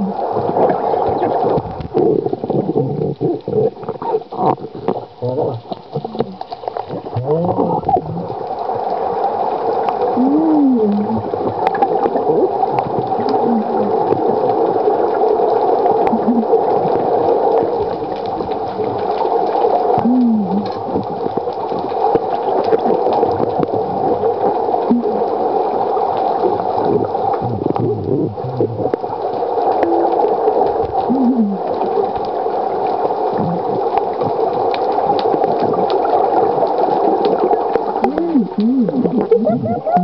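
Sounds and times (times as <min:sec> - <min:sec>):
underwater water rush with gurgling: 0:00.0 - 0:40.0
moaning tones: 0:10.2 - 0:11.3, 0:38.0 - 0:40.0.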